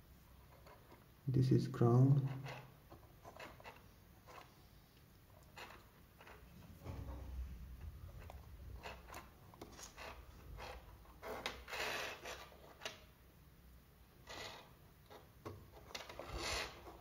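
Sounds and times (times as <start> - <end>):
rubbing scrapes: 8.1 - 12.9, 14.3 - 17.0.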